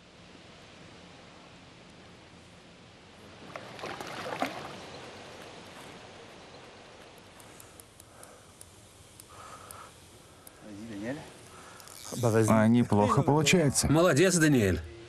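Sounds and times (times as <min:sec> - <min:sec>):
soft wash of water: 0:00.0 - 0:09.2
fish splashing at water surface: 0:03.4 - 0:05.3.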